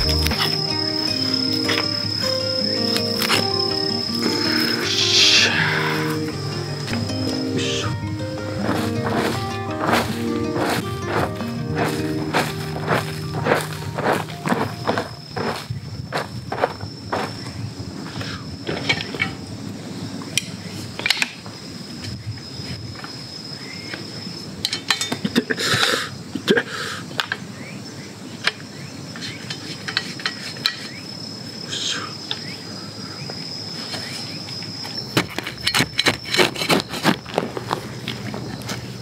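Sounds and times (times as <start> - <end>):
high-pitched insect call: 0.0 - 39.0
shovel scraping into soil: 8.6 - 15.7, 35.2 - 39.0.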